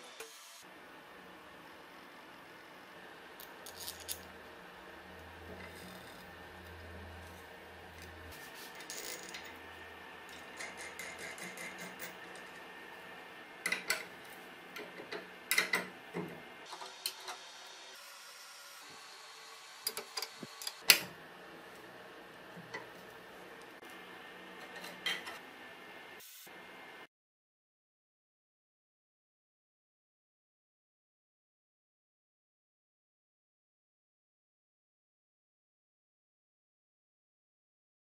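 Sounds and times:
metal bolt and washers clinking: 8.0 - 9.5, 13.6 - 14.2, 14.8 - 16.3.

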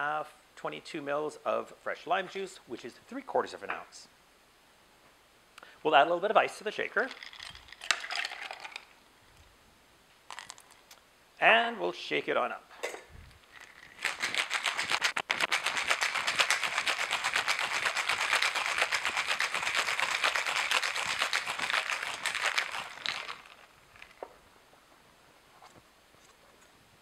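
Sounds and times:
ice rattling in cocktail shaker: 6.8 - 9.0, 10.3 - 10.8, 13.4 - 24.2.

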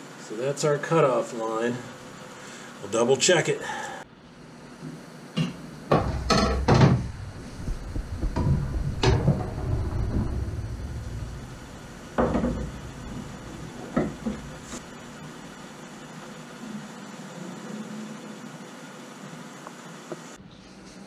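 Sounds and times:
dull rumble of handling: 5.9 - 15.6.

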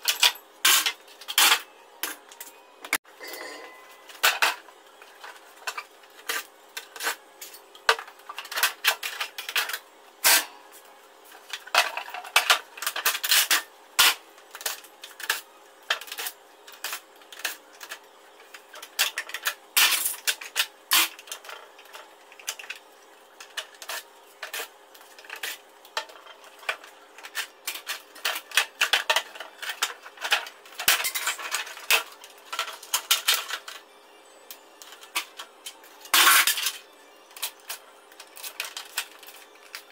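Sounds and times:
plastic parts clicking and rattling: 23.4 - 33.8, 34.8 - 39.9.

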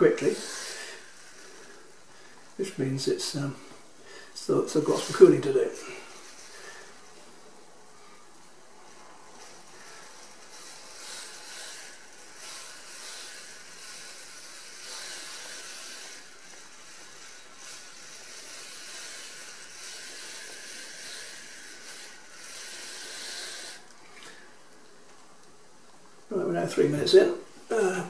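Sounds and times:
aerosol spray hissing: 0.1 - 2.4, 9.4 - 23.9.

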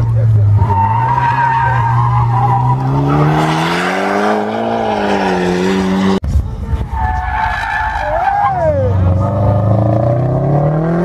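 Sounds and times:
another car running: 0.0 - 6.2
car engine pulling hard: 0.0 - 6.2
tyre squeal: 0.5 - 3.6.

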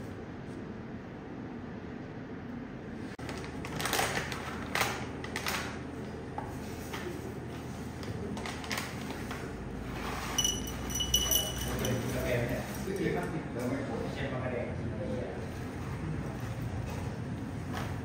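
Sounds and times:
cups and tools clinking: 10.0 - 13.0
high ringing note: 10.3 - 12.1.

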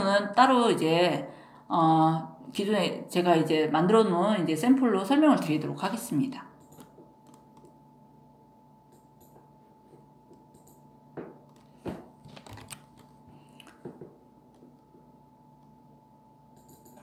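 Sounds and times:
faint electrical hum: 0.0 - 17.0
computer mouse clicks: 6.6 - 7.8, 10.3 - 10.8, 16.6 - 17.0.

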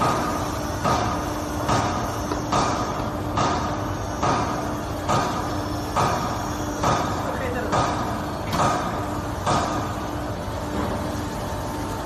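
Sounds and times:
continuous low machine hum: 0.0 - 12.0.

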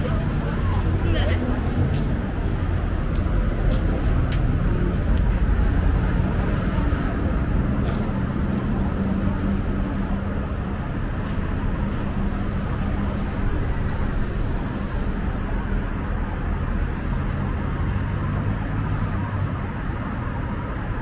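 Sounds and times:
low engine hum: 0.0 - 21.0
passing cars and buses rumble: 0.0 - 21.0.

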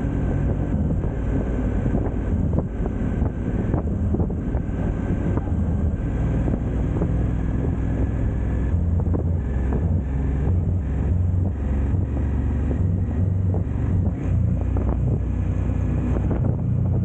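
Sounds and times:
motorcycle engine running: 0.0 - 17.0
wind buffeting microphone: 0.0 - 17.0.

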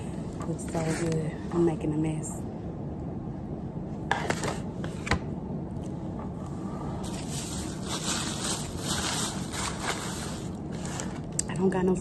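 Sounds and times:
low room hum: 0.0 - 12.0
plastic container crinkling: 7.1 - 11.3.

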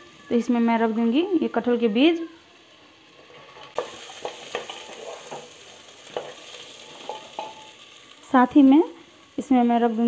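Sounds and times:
food sizzling in hot oil: 0.0 - 10.0
wooden spatula scraping a pot: 3.2 - 7.6.

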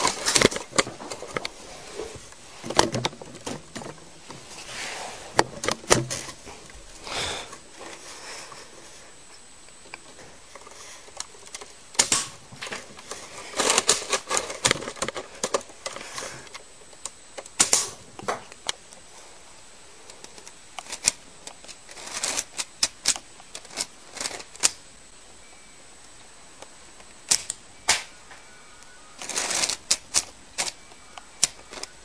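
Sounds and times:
plastic toy gun clicks: 27.3 - 28.1, 31.4 - 31.9.

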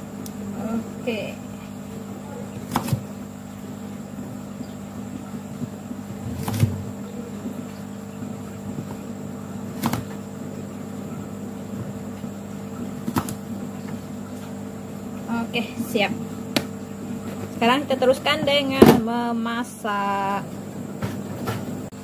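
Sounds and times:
steady background hum: 0.0 - 22.0
knife chopping on plastic board: 2.5 - 3.1, 6.2 - 6.9, 9.7 - 10.2, 13.0 - 13.4.

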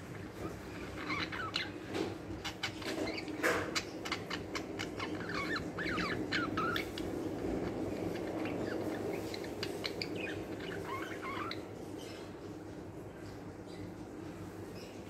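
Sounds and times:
budgerigars chattering: 0.8 - 11.6.

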